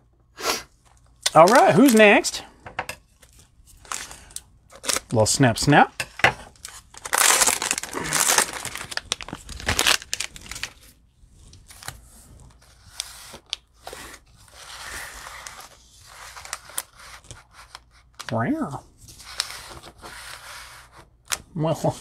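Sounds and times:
plastic wrapper tearing and crinkling: 0.8s - 2.4s, 3.2s - 5.4s, 6.4s - 13.6s
cards rustling: 0.8s - 2.5s, 3.2s - 18.4s, 19.0s - 21.5s.

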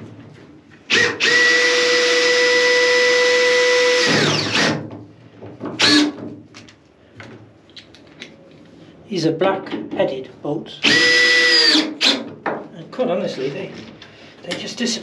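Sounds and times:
cordless drill boring into metal: 0.9s - 4.8s, 5.8s - 6.2s, 10.8s - 12.2s.

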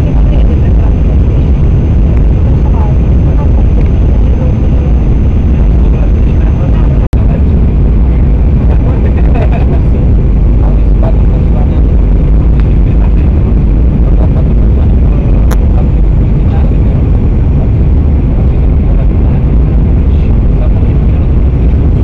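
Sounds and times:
jet engine roar in cabin: 0.0s - 22.0s.

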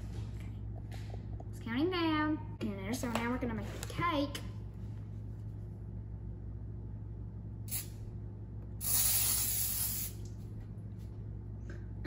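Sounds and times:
aerosol cooking spray hissing: 7.7s - 7.9s, 8.8s - 10.2s.

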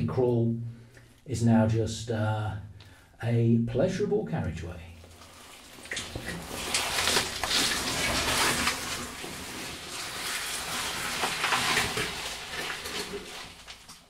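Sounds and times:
boots and suit scraping on clay: 6.4s - 9.0s.

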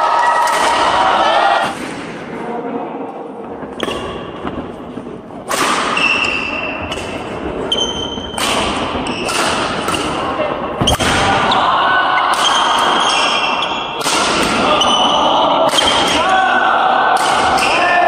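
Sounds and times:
racket hitting shuttlecock: 5.4s - 10.2s, 10.8s - 11.6s, 12.2s - 14.9s, 15.6s - 16.3s, 17.1s - 17.8s
sports shoes squeaking on floor: 6.0s - 8.4s, 9.0s - 10.0s, 12.8s - 14.0s, 14.8s - 15.2s.

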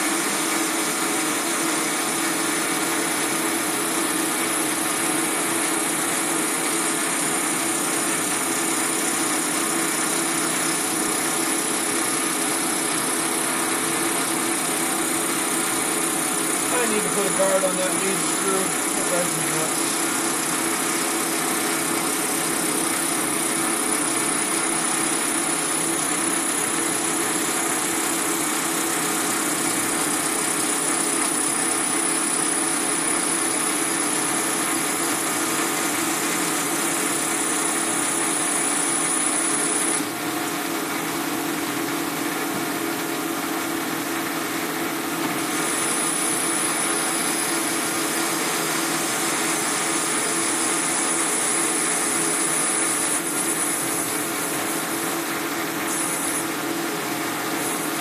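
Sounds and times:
lathe motor hum: 0.0s - 40.2s, 43.8s - 58.0s
lathe cutting noise: 0.0s - 41.9s, 43.5s - 58.0s
high whine: 16.7s - 20.6s.

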